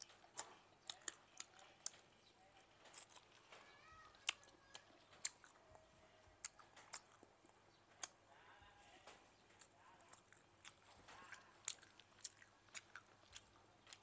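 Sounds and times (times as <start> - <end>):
chewing mouth clicks and smacks: 0.0 - 8.3, 9.1 - 14.0.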